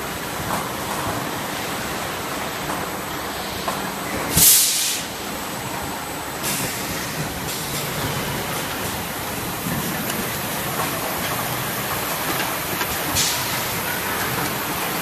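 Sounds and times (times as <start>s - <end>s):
pneumatic hiss: 3.4s - 5.2s, 12.9s - 14.7s
machinery running: 5.9s - 15.0s.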